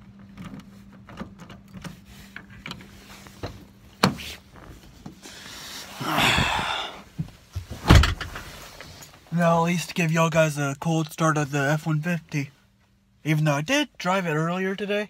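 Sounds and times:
clothing rustling on seat: 1.9s - 6.0s.

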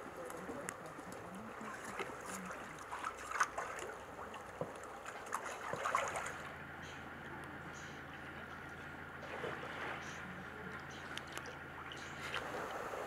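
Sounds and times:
small water splashes: 0.0s - 6.6s, 9.2s - 13.0s
water trickling and lapping: 0.0s - 7.0s, 8.4s - 13.0s
low steady hum: 0.0s - 13.0s.

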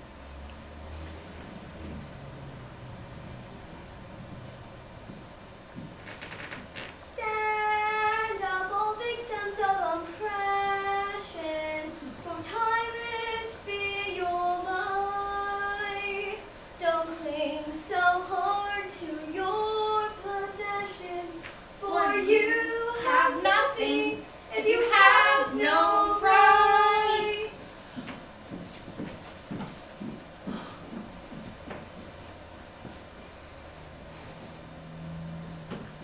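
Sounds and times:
girl singing unaccompanied: 7.0s - 27.9s.

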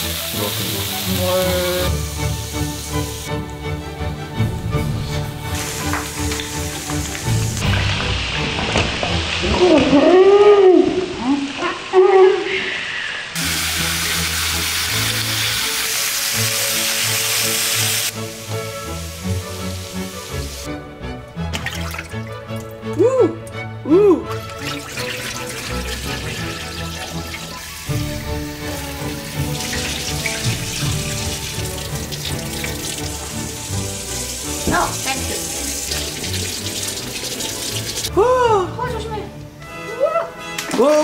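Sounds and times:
faucet water running into sink: 0.0s - 3.7s, 4.4s - 9.6s, 13.4s - 20.7s, 21.4s - 22.9s, 24.3s - 38.1s
meat and mushrooms sizzling: 0.0s - 3.8s, 4.4s - 10.3s, 13.4s - 20.8s, 24.3s - 38.1s
water splashing over food: 21.4s - 23.6s, 24.2s - 38.1s.

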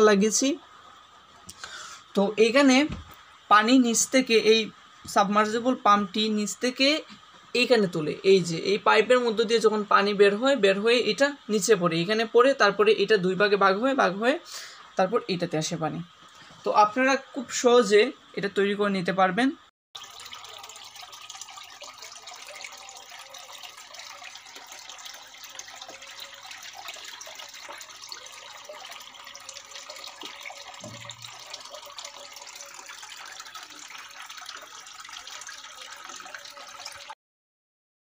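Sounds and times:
water trickling down fountain: 20.0s - 37.2s.

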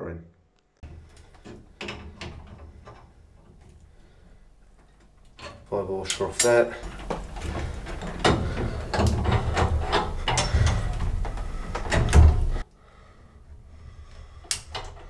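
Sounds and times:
metal fittings clicking and scraping: 4.7s - 12.6s, 14.4s - 15.0s
heavy bump: 6.8s - 12.6s.

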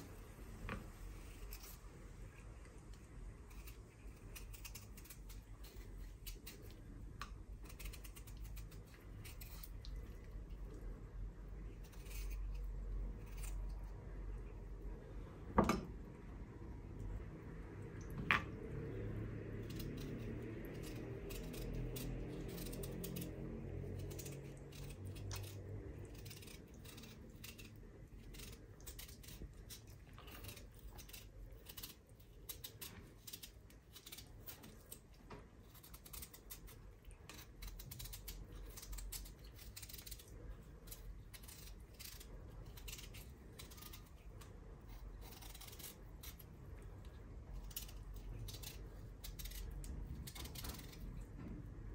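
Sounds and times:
faint low hum: 0.0s - 51.9s
knife cutting potato skin: 3.4s - 10.0s, 19.6s - 46.6s, 47.5s - 51.2s.

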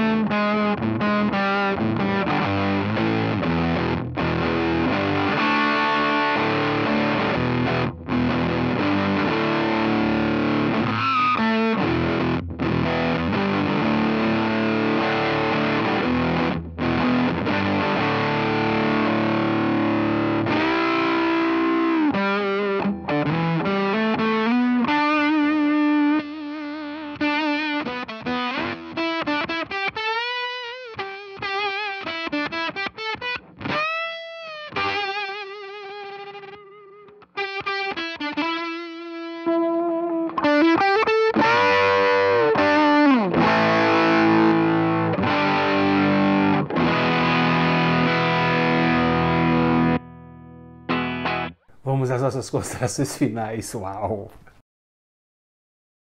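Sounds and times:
fuzzed electric guitar: 0.0s - 51.8s.

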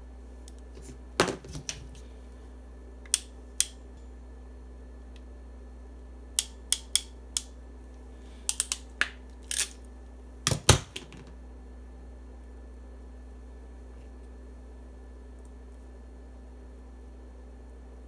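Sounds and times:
crimping tool clicks: 3.0s - 3.8s, 6.4s - 7.6s, 8.5s - 9.8s.

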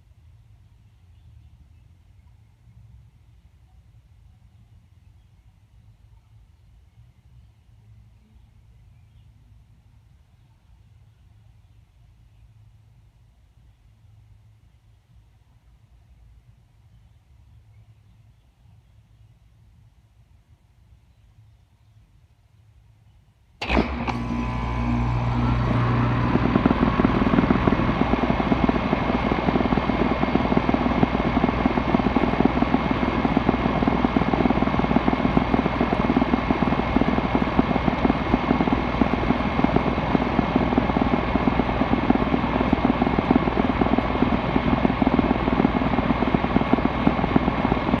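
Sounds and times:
air compressor running: 23.6s - 48.0s.

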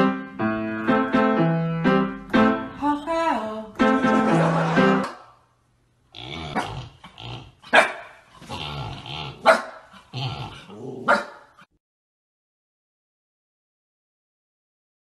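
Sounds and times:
dog barking: 7.7s - 8.2s, 9.4s - 9.9s, 11.0s - 11.6s.

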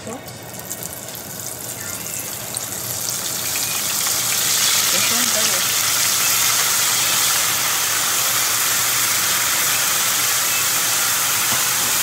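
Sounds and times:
food deep-frying in oil: 0.0s - 12.0s.

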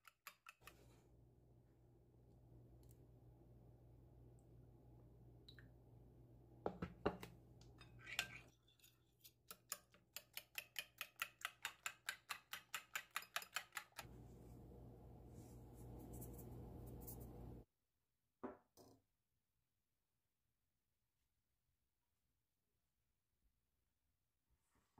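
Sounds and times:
fork beating eggs on plate: 7.8s - 14.1s.

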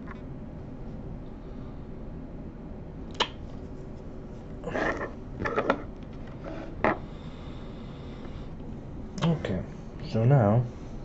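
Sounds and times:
scraping on worktable: 4.6s - 7.0s.

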